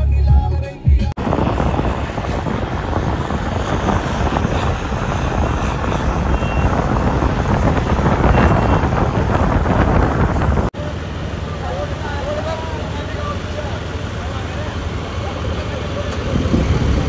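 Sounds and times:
moving vehicle rush: 0:01.1 - 0:17.0
wind buffeting microphone: 0:01.2 - 0:10.7, 0:16.2 - 0:17.0.

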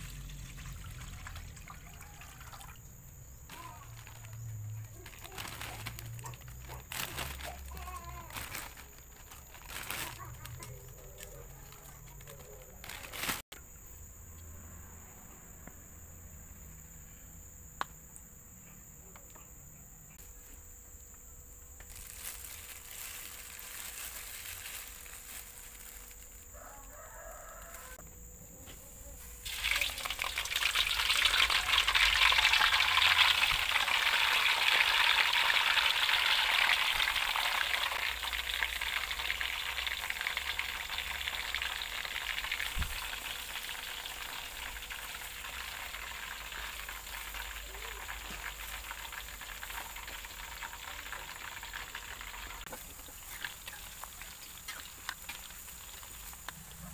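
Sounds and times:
noodles sizzling in hot oil: 0:03.4 - 0:13.5, 0:21.8 - 0:28.0, 0:29.4 - 0:56.5
faint oil heating: 0:29.2 - 0:56.9.

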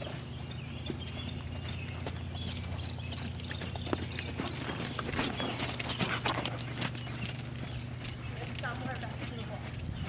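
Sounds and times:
horse hoofbeats on sand: 0:00.0 - 0:10.0.

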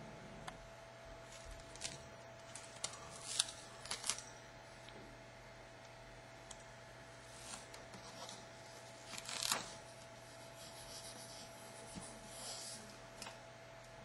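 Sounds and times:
electrical hum: 0:00.0 - 0:14.0
scratching on foam: 0:09.2 - 0:12.9.

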